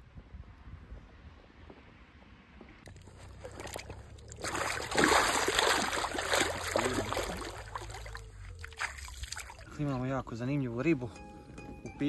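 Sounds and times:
water splashing and sloshing: 2.8 - 10.0.

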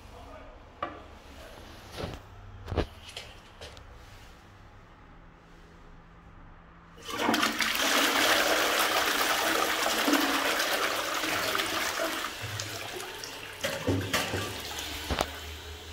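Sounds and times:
toilet flushing: 7.0 - 15.9.

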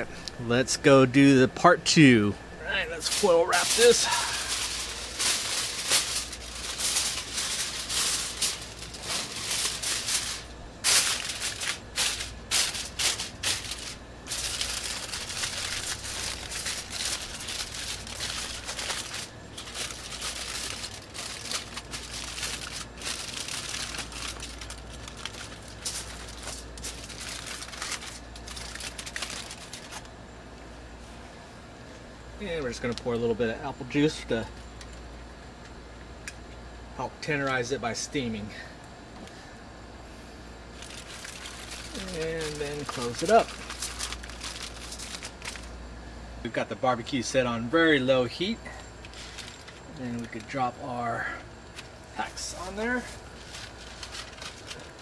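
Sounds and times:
aluminium foil crinkling: 2.6 - 30.2, 32.5 - 35.1, 40.7 - 45.8, 48.3 - 55.0.

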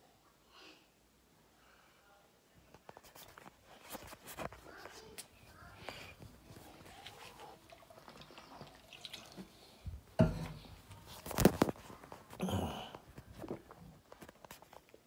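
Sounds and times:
phone handling rustle: 11.0 - 12.3.

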